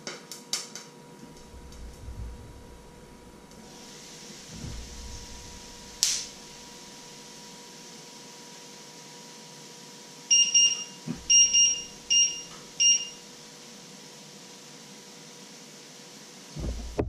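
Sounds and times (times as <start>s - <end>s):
high electronic appliance beeps: 10.3s - 13.2s
dull knock: 16.6s - 17.0s.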